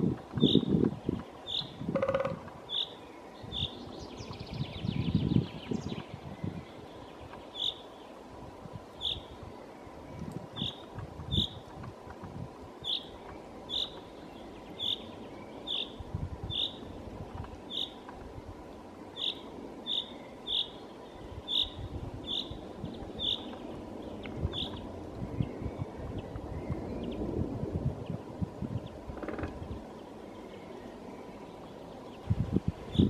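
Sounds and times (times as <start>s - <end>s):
chaffinch calling: 0.4s - 8.1s, 9.0s - 9.4s, 10.6s - 11.6s, 12.8s - 16.9s, 17.6s - 18.0s, 19.1s - 27.2s.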